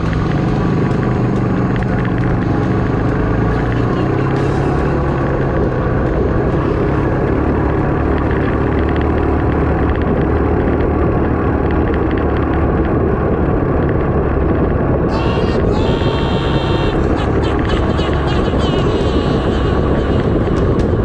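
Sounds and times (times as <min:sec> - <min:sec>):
quad bike engine running: 0:00.0 - 0:21.0.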